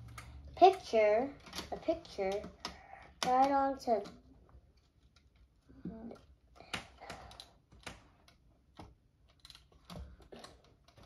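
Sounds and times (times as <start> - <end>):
plastic bricks clicking: 5.0 - 11.0.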